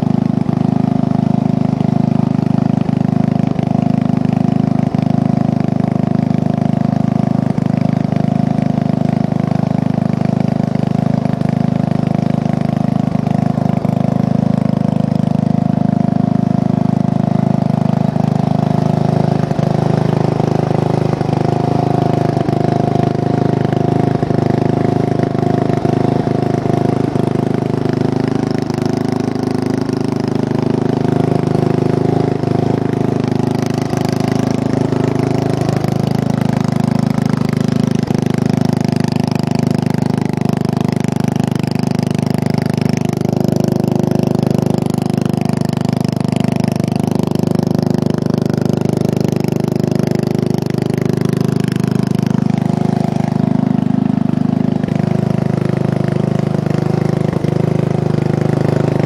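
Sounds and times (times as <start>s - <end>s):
riding lawn mower engine: 0.0s - 59.0s
wheels splashing water: 0.0s - 59.0s.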